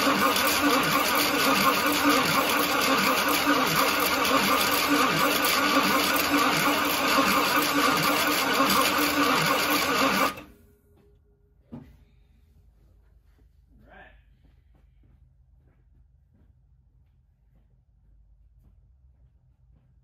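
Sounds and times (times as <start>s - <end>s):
car engine running: 0.0s - 10.5s.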